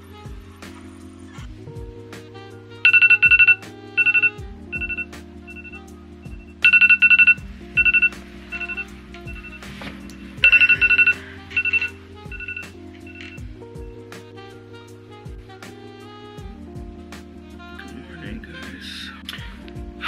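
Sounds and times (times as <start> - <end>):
soft background music: 0.0 - 20.0
electronic alarm beeping: 2.9 - 9.7, 10.4 - 13.4.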